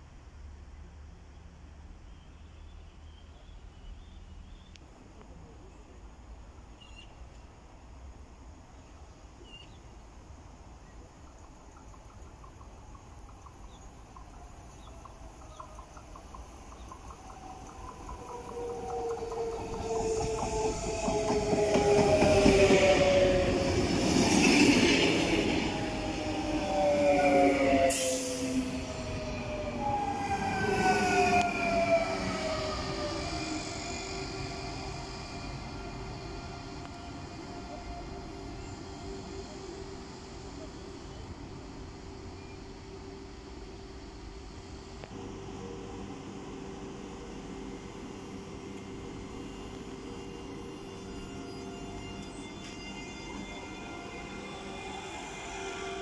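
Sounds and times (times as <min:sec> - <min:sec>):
electric train approaching: 0:07.6 - 0:56.0
falling train whine: 0:10.2 - 0:56.0
bird chirps: 0:10.9 - 0:20.0.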